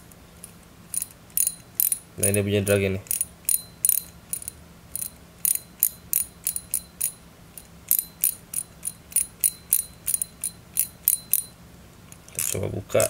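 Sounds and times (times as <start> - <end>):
fishing reel drag clicking: 12.4 - 12.6.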